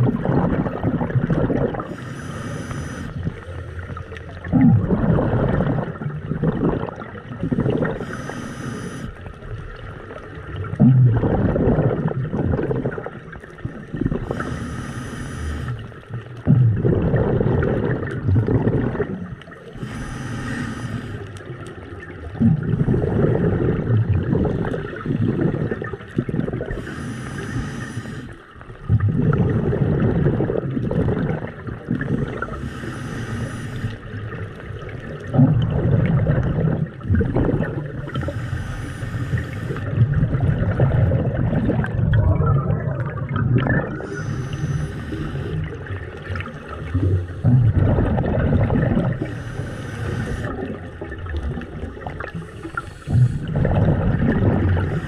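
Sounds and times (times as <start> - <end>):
exhaled bubbles gurgling: 0.0 - 55.0
regulator inhalation hiss: 1.9 - 3.2, 8.0 - 9.2, 14.4 - 15.8, 19.8 - 21.3, 26.8 - 28.4, 32.6 - 34.0, 38.2 - 39.9, 44.0 - 45.6, 49.2 - 50.6, 52.6 - 53.5.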